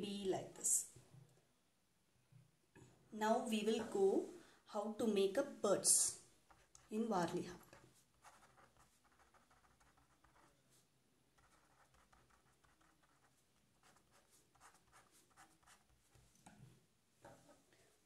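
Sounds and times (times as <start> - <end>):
pen scratching on paper: 6.5 - 10.8, 11.4 - 16.2.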